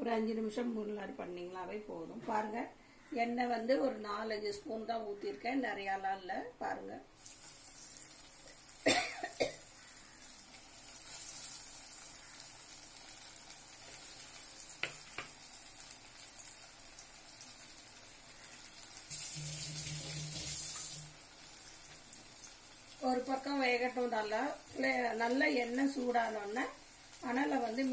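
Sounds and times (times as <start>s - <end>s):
food sizzling in oil: 7.2s - 27.9s.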